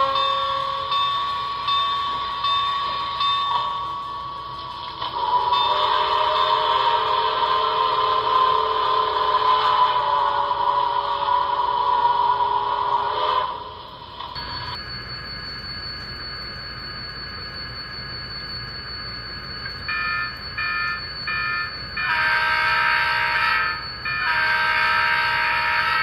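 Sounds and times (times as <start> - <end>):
steam train whistle: 0.0 - 3.8, 5.1 - 13.9, 20.6 - 26.0
train horn blasts: 5.1 - 13.8, 22.0 - 26.0.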